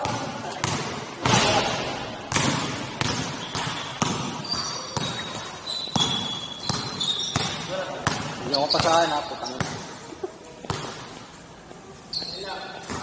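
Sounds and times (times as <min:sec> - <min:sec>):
basketball bouncing in a hall: 0:00.0 - 0:11.3, 0:12.2 - 0:13.0.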